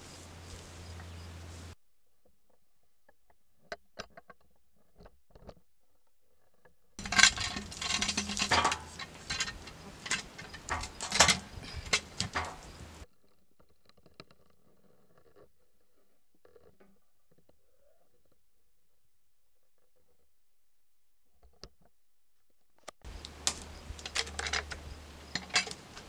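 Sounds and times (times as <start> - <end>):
cant hook knocking and scraping log: 7.0 - 13.0, 23.1 - 26.0
faint clicks: 23.1 - 26.0.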